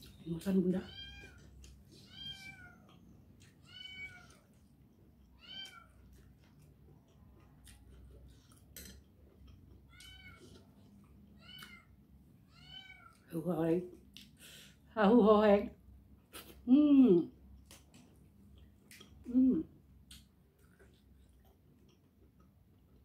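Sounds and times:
cat meowing: 2.0s - 2.9s, 3.5s - 4.5s, 12.5s - 13.2s.

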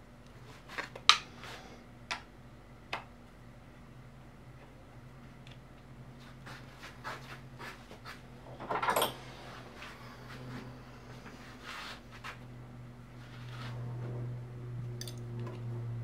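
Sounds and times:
steady low hum: 0.0s - 16.0s
scrape on hand guard: 9.8s - 12.4s, 13.2s - 13.9s.

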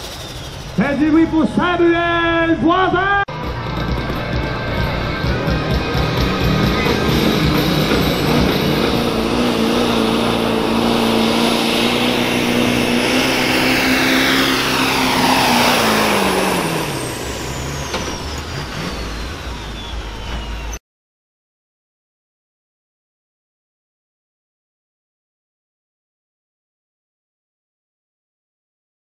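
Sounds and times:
diesel engine at high revs: 0.0s - 1.8s, 3.3s - 20.8s
turbo whine winding down: 0.0s - 2.3s, 3.2s - 20.8s.

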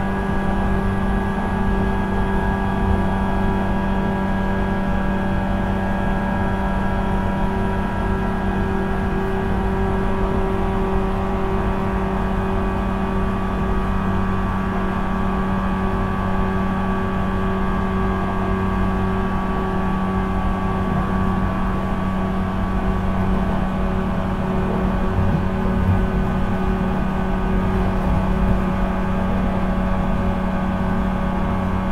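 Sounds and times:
wheel-on-rail rumble: 0.0s - 31.9s
traction motor whine: 17.4s - 31.8s.

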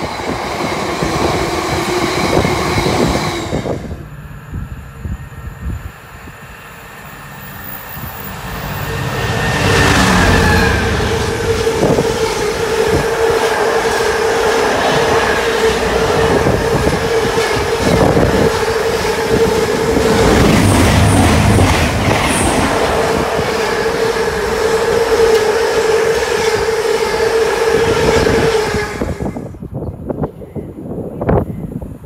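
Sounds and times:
freight train rumble: 0.0s - 32.0s
train wheels clattering on rails: 9.6s - 26.8s.

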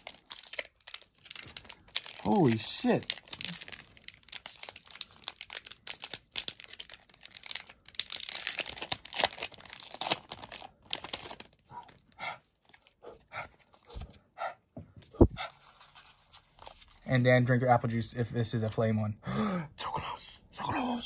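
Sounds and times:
foil wrapper tearing and crinkling: 0.0s - 11.7s.

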